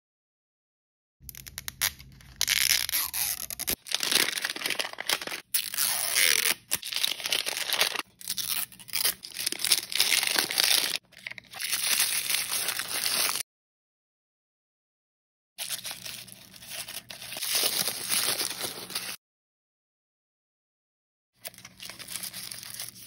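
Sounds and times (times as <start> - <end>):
wrapper tearing: 1.3 - 13.4, 15.6 - 19.2, 21.5 - 23.0.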